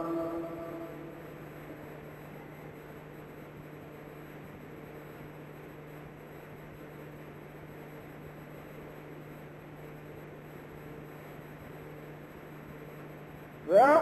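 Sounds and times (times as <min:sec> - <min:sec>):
electrical hum with hiss: 0:00.0 - 0:14.0.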